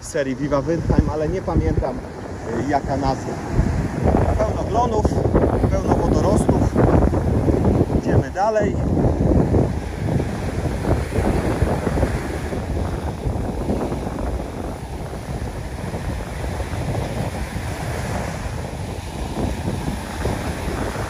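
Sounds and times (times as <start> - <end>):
small waves washing on sand: 0.0 - 21.0
wind buffeting microphone: 0.0 - 21.0.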